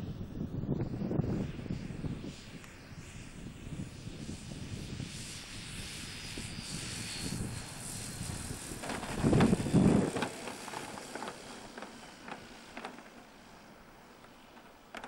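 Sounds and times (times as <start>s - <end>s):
propeller faintly whirring: 0.0s - 15.0s
light clicks of wheels rolling: 8.6s - 15.0s.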